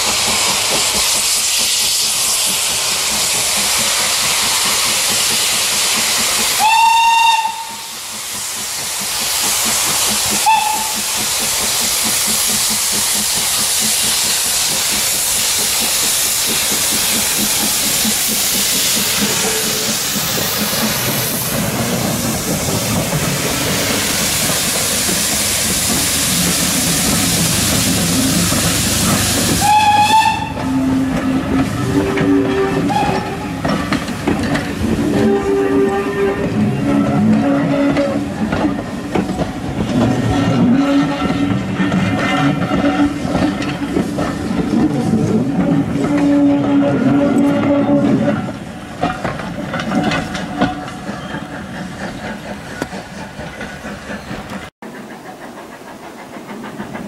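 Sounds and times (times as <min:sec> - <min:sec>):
steam hissing from locomotive: 0:00.0 - 0:57.0
steam whistle blasts: 0:06.6 - 0:08.0, 0:10.4 - 0:11.0, 0:29.6 - 0:33.6, 0:35.0 - 0:38.3, 0:46.0 - 0:48.4.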